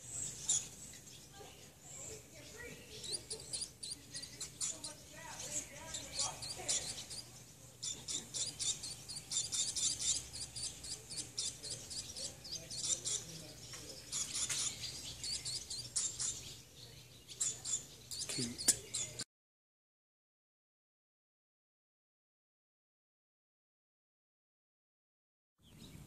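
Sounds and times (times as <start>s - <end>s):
nestling birds chirping: 0.0s - 19.3s, 25.6s - 26.0s.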